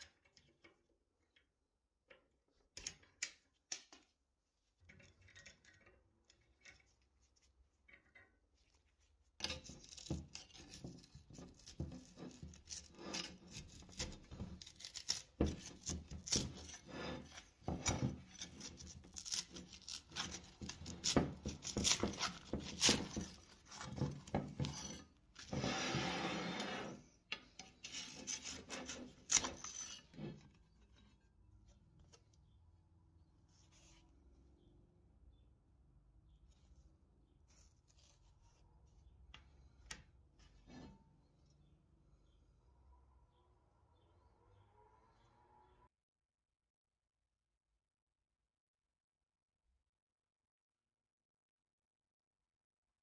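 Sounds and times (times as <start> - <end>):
blade scraping rusty edge: 9.4 - 31.2.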